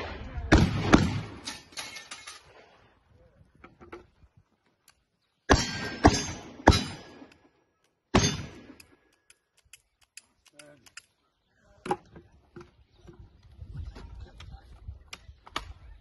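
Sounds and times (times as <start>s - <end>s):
gunshots echoing: 0.0s - 1.8s, 5.5s - 7.4s, 8.1s - 8.9s.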